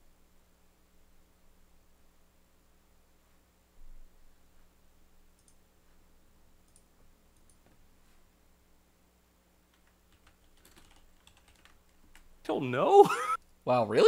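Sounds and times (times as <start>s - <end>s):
faint steady hum: 0.0s - 14.0s
faint computer clicks: 5.3s - 5.6s, 6.6s - 7.8s.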